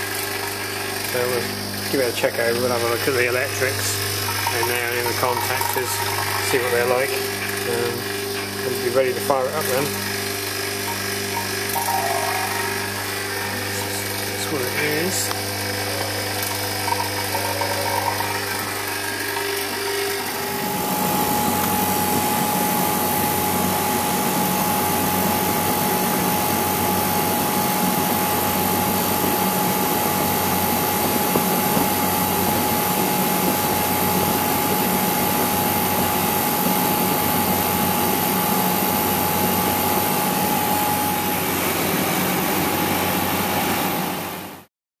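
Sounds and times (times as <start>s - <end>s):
refrigeration compressor running: 0.0s - 44.6s
mains hum: 0.4s - 43.7s
thin steady tone: 3.2s - 8.1s, 9.5s - 20.4s.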